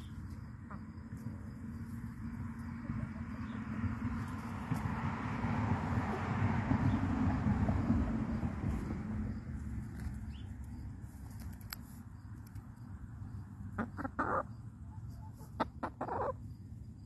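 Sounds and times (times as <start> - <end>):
chickens clucking: 0.0 - 1.4, 13.7 - 16.4.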